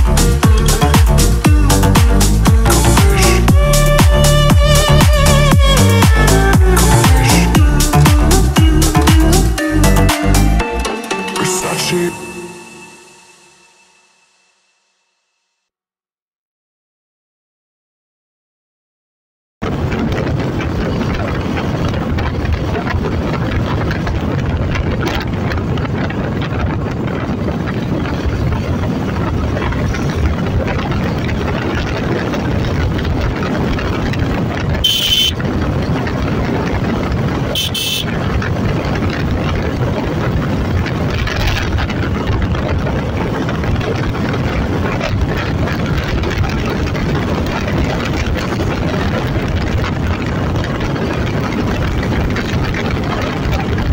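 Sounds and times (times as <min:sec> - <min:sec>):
wind rushing: 0:00.0 - 0:10.1, 0:19.6 - 0:53.9
motorcycle engine cruising: 0:00.0 - 0:10.6, 0:20.6 - 0:53.9
short high beeps: 0:34.8 - 0:35.4, 0:37.6 - 0:38.1.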